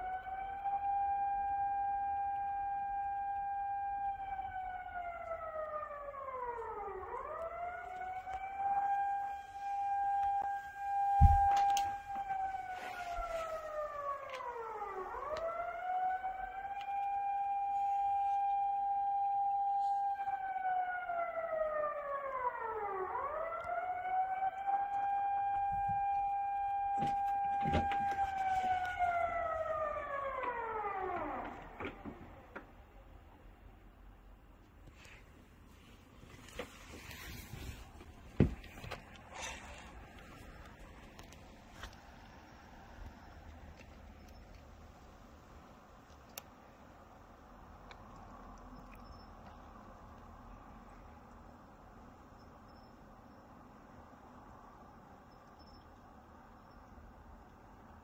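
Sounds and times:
warning siren: 0.0s - 32.9s, 36.3s - 44.6s.

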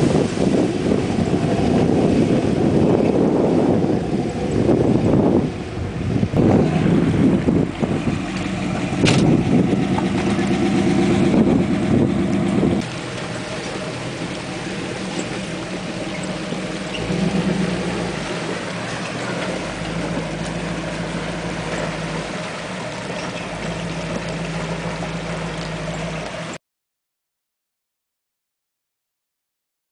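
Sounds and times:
car engine running: 0.5s - 26.5s.

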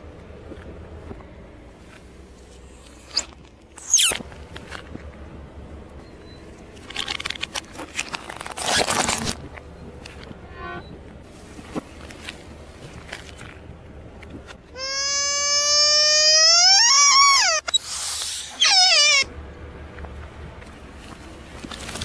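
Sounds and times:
squeak falling in pitch: 3.1s - 4.2s, 10.5s - 11.0s, 14.8s - 19.3s.

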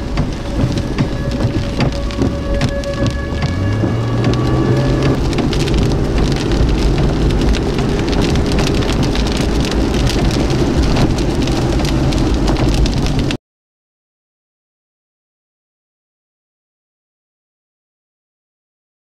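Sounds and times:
heavy rain on car windshield: 0.0s - 13.4s
low rumble of vehicle: 0.0s - 13.4s.

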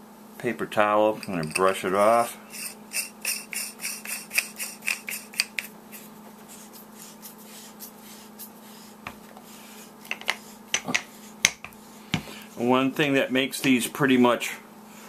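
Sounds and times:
hands rubbing a flashlight: 2.5s - 11.8s.

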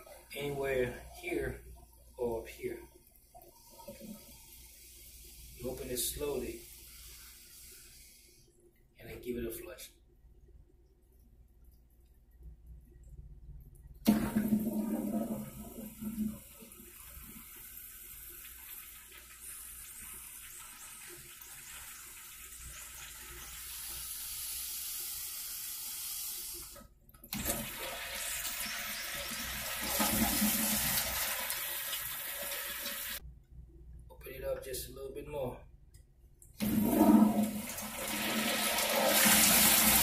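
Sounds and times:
toilet flushing water rush: 14.0s - 25.0s, 26.6s - 33.2s, 36.6s - 40.0s.

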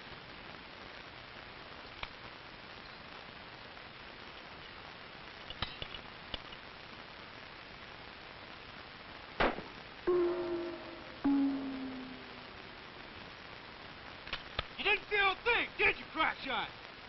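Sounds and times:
film soundtrack hiss: 0.0s - 17.0s
rifle shot: 9.4s - 9.8s.

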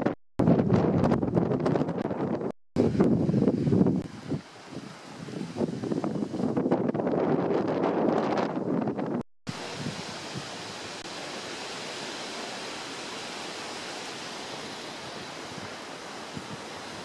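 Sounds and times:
outdoor background hiss: 2.8s - 8.9s, 9.5s - 17.0s.

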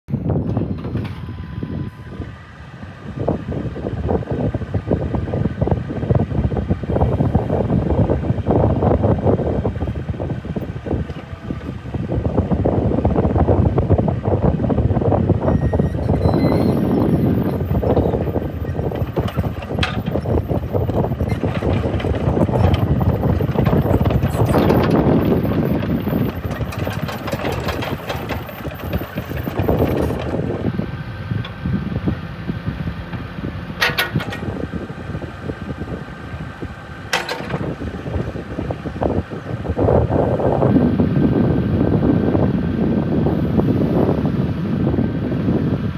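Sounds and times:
excavator diesel engine under load: 0.1s - 45.9s
metal clank: 33.8s - 34.6s, 37.1s - 37.8s.

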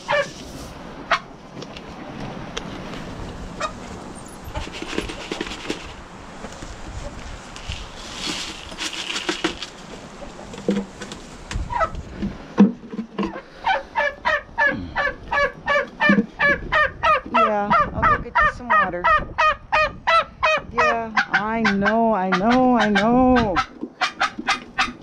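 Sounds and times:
poultry calling: 0.0s - 0.4s, 13.2s - 25.0s.

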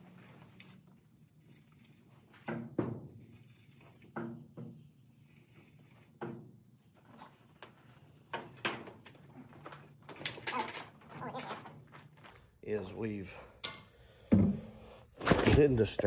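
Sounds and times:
tools knocking and clunking: 13.6s - 15.6s.

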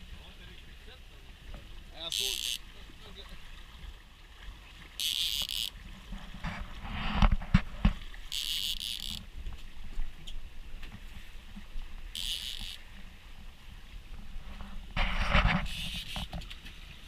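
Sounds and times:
fishing reel drag buzzing: 2.0s - 2.7s, 5.0s - 5.8s, 8.2s - 9.3s, 12.1s - 13.0s, 15.6s - 16.3s.

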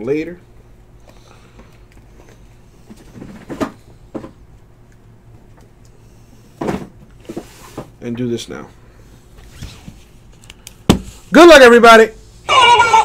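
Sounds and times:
low steady hum: 0.0s - 13.0s
cardboard boxes knocking and thumping: 10.9s - 11.2s.

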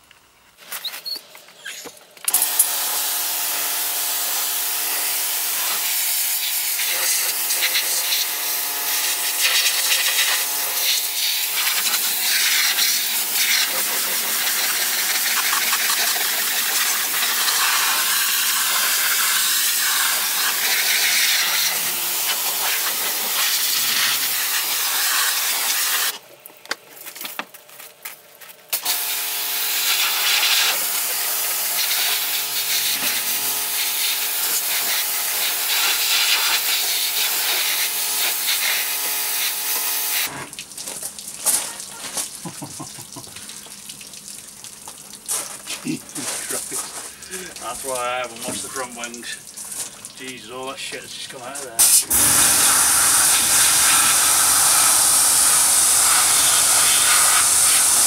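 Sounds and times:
pressure washer machine hum: 2.3s - 26.2s, 28.7s - 40.5s, 51.7s - 58.0s
pressure washer water jet hissing: 2.3s - 26.2s, 28.7s - 40.5s, 51.7s - 58.0s.

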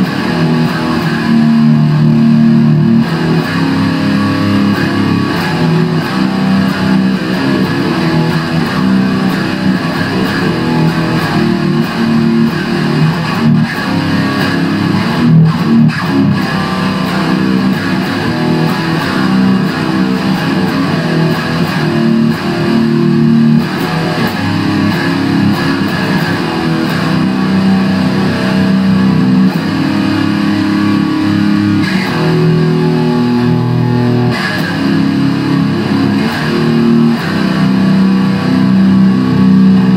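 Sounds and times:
distorted electric guitar riffs: 0.0s - 39.9s.

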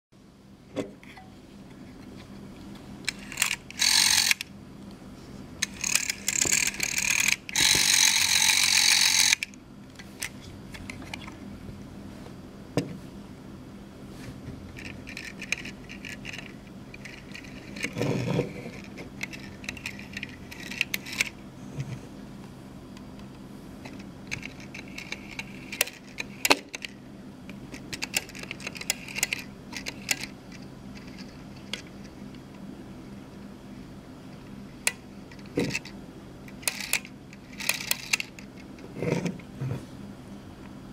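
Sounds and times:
rotary dial whirring rattle: 3.0s - 4.6s, 5.6s - 11.4s, 14.7s - 21.9s, 23.8s - 32.6s, 34.4s - 39.6s.

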